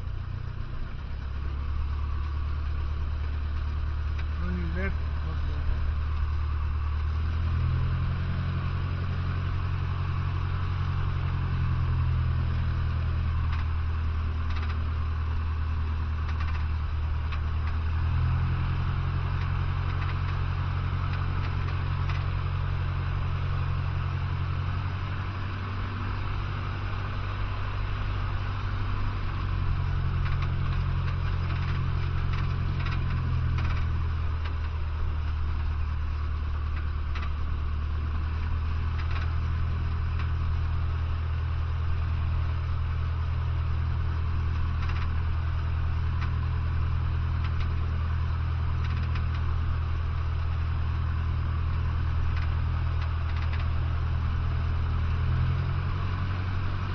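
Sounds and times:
aircraft engine and propeller drone: 43.8 - 45.6.

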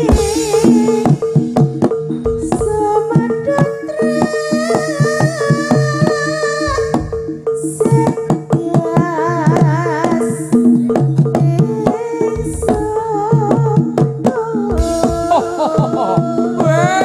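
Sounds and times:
wavering melody line: 0.0 - 10.9
hand-drum strokes: 0.0 - 17.0
metal gamelan notes: 0.0 - 17.0.

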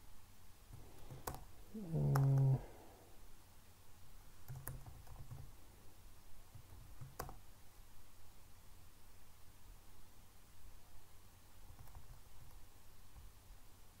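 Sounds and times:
man humming: 1.7 - 2.9
keyboard key presses: 4.4 - 5.5.

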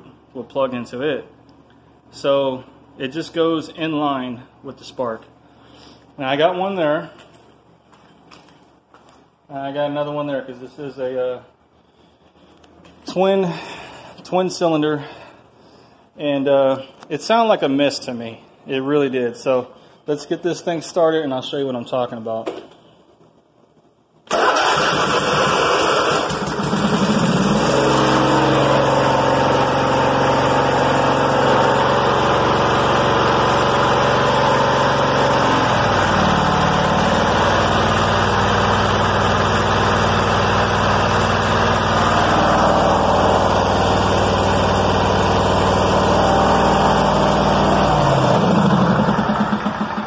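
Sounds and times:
riding mower engine running: 24.3 - 50.0.

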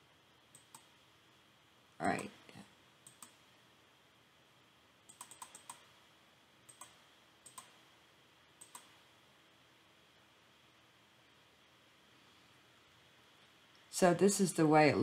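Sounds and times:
mouse clicks: 0.5 - 0.9, 3.0 - 3.4, 5.1 - 5.9, 6.7 - 7.8, 8.6 - 9.0
keyboard keystrokes: 5.1 - 5.8.

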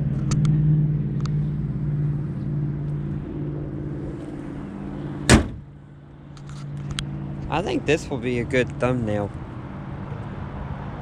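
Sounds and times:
car hood slamming shut: 5.2 - 5.7.

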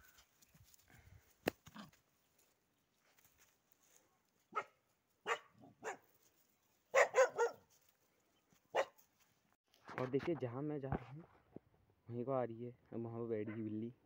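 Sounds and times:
small dog barking: 4.5 - 6.1, 6.9 - 7.7, 8.7 - 9.0.

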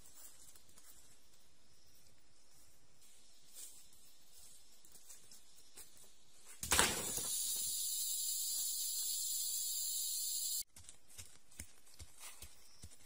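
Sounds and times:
high-pitched insect chorus: 7.0 - 10.6.

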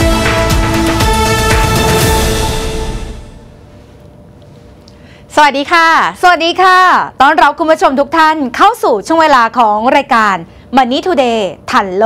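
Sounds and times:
theme music final chord: 0.0 - 3.9.

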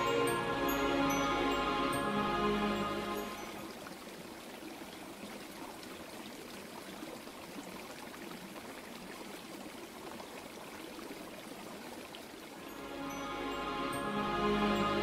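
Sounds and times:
brook flowing over stones: 3.0 - 13.8.

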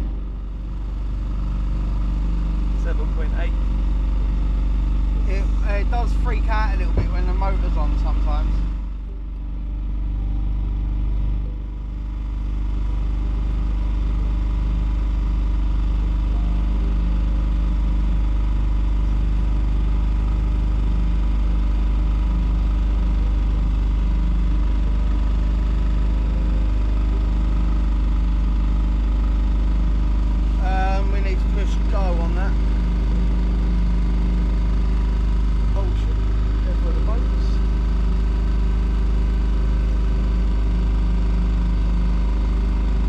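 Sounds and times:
boat motor droning: 0.0 - 43.0.

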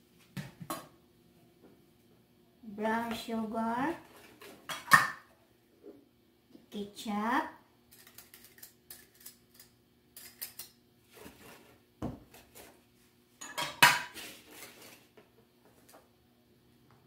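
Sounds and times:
utensils clinking on countertop: 7.9 - 10.8, 13.4 - 14.9.

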